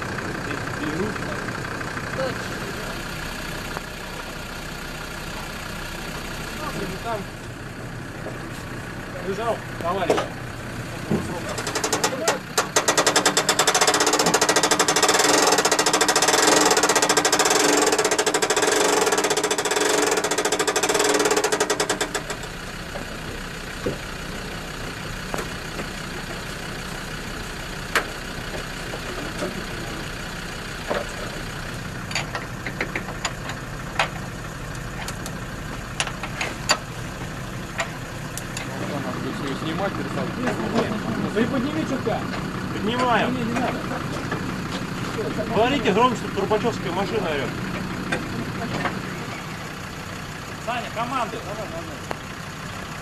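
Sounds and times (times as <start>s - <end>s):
low engine hum: 0.0s - 53.0s
fast mechanical rattle: 11.0s - 53.0s.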